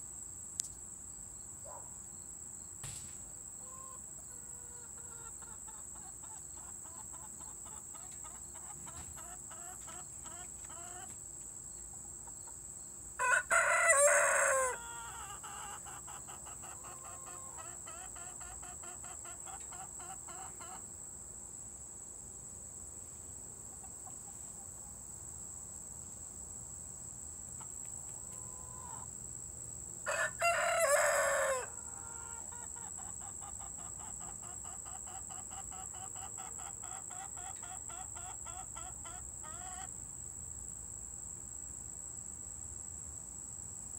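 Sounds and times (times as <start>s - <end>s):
insect trill: 0.0s - 43.9s
hens clucking softly: 3.6s - 11.2s, 14.7s - 20.8s, 31.7s - 39.9s
young rooster crowing: 13.2s - 17.9s, 30.0s - 32.7s.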